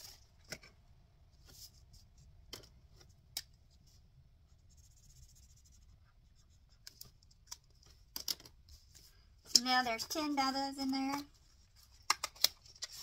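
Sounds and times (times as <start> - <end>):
marker scratching on card: 4.6 - 7.0
banknotes and card rustling: 6.6 - 13.0.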